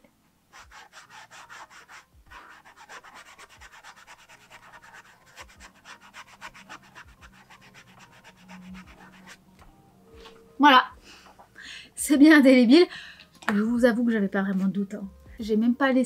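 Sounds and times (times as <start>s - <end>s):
paintbrush scrubbing paper: 0.5s - 9.4s.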